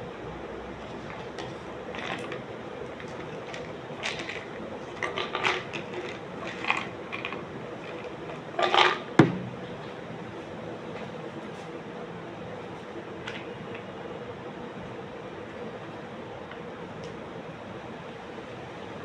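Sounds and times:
faint steady hum: 0:00.0 - 0:19.0
sharp knock: 0:09.2 - 0:09.6.

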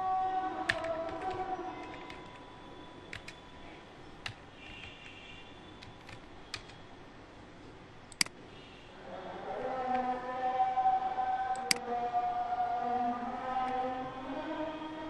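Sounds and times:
computer keys and mouse clicks: 0:00.7 - 0:02.4, 0:03.1 - 0:03.4, 0:05.8 - 0:06.8, 0:08.1 - 0:08.4, 0:11.5 - 0:11.8.

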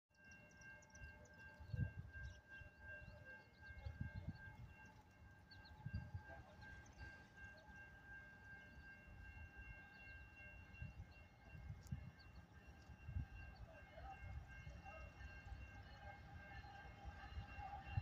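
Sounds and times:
wind gusts buffeting microphone: 0:05.6 - 0:06.3.

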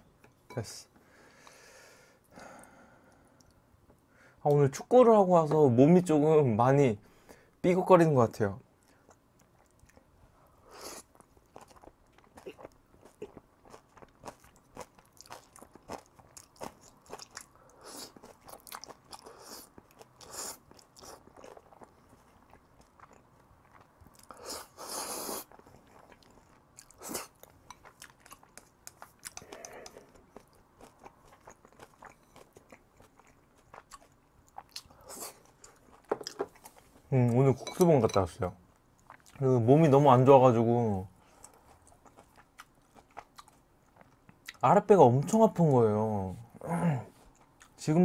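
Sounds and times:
wet chewing and mouth smacks: 0:11.0 - 0:24.4, 0:25.5 - 0:37.0, 0:41.3 - 0:44.6.

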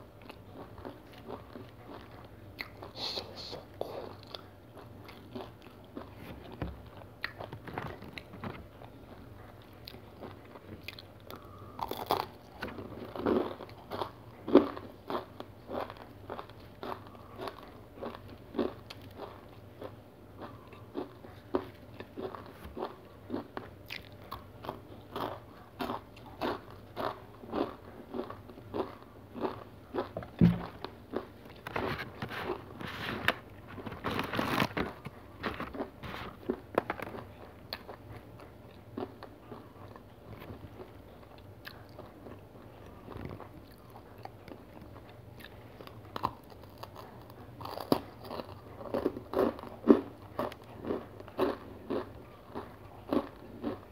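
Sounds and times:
crunchy chewing: 0:00.0 - 0:53.9
sharp thump: 0:30.3 - 0:30.7.

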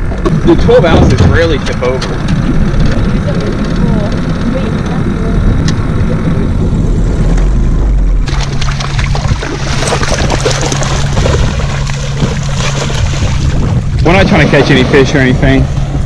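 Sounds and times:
low motor hum: 0:00.0 - 0:16.0
outboard motor running: 0:00.0 - 0:16.0
wind rush: 0:00.0 - 0:16.0
dogs splashing through water: 0:08.3 - 0:13.8.

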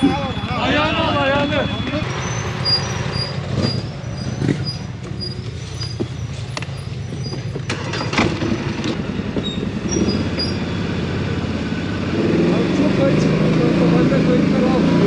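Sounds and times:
engine running at low speed: 0:00.0 - 0:15.0
knocks and rattles over bumps: 0:03.4 - 0:10.6.

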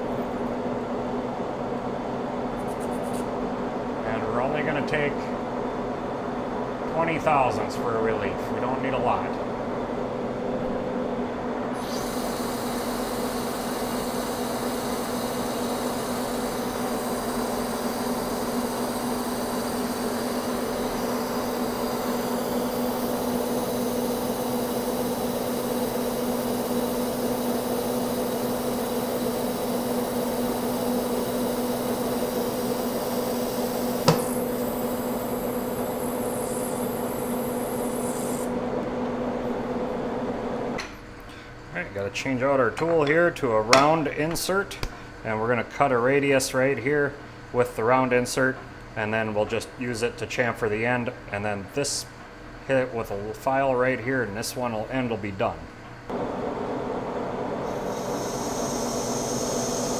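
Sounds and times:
hiss of metal cutting: 0:11.8 - 0:38.5, 0:57.6 - 0:59.9
lathe motor humming: 0:11.8 - 0:40.8, 0:56.1 - 0:59.9.

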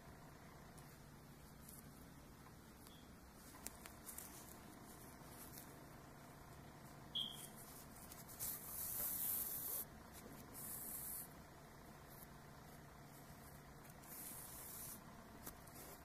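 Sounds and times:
brief high squeak: 0:07.2 - 0:07.6.

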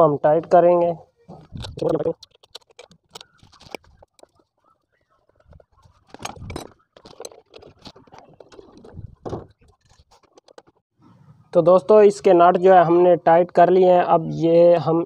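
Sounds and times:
person speaking: 0:00.0 - 0:02.3, 0:11.5 - 0:15.0.

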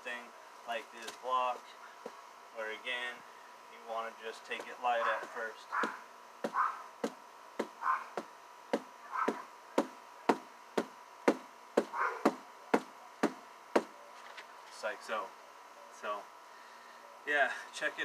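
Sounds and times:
fists striking padded block: 0:04.6 - 0:13.9.

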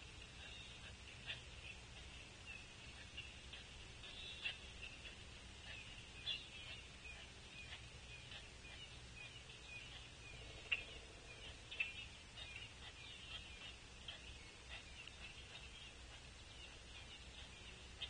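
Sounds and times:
small birds chirping: 0:00.0 - 0:18.0
steady low rumble: 0:00.0 - 0:18.0.

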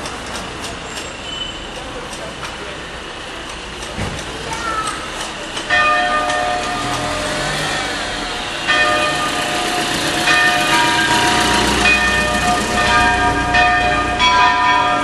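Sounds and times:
church bells ringing: 0:05.6 - 0:15.0.

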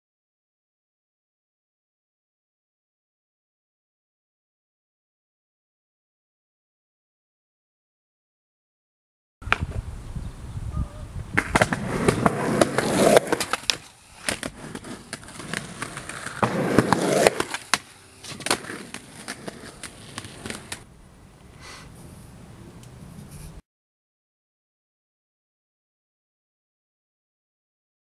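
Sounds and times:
skateboard rolling on concrete: 0:11.2 - 0:20.9
skateboard popping and landing clacks: 0:11.3 - 0:20.8
skateboard grinding on metal bar: 0:11.5 - 0:20.8.

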